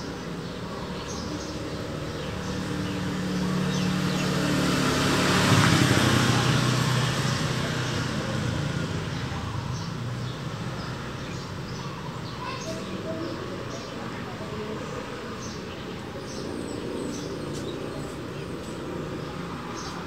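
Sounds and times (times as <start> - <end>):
birds chirping: 0.0 - 20.0
vehicle engine passing by: 0.3 - 11.9.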